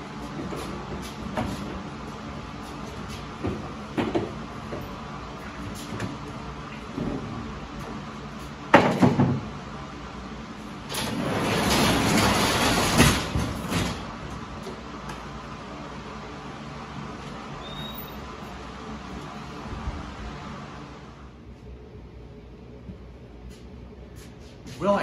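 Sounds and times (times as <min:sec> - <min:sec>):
knocks of furniture on a dolly: 0:03.4 - 0:04.8, 0:08.7 - 0:09.5, 0:11.0 - 0:14.1
garage door rattling down: 0:10.8 - 0:14.6.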